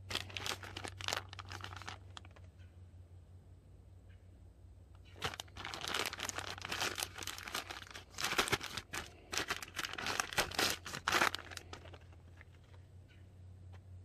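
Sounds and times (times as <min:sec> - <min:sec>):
plastic bag crinkling: 0:00.0 - 0:02.4, 0:05.1 - 0:12.8.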